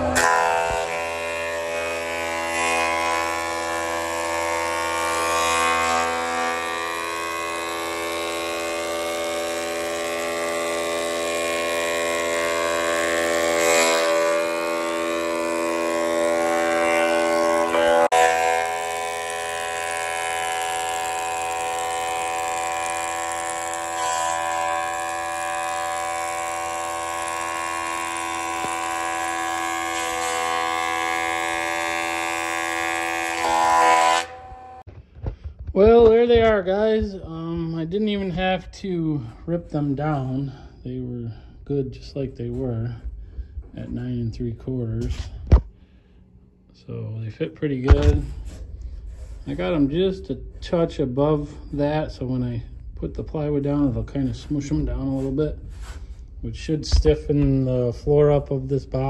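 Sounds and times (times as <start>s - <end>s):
thickness planer whine: 0.0s - 59.0s.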